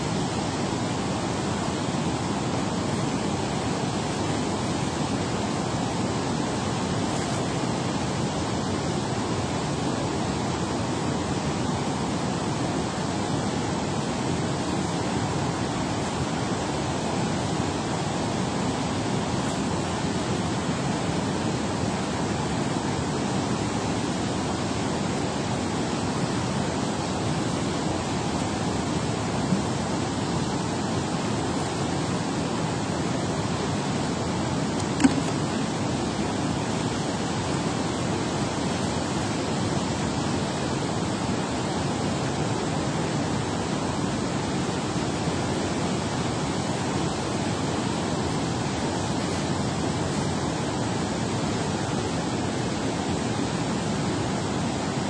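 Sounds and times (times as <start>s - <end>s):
water rushing from spillway: 0.0s - 55.0s.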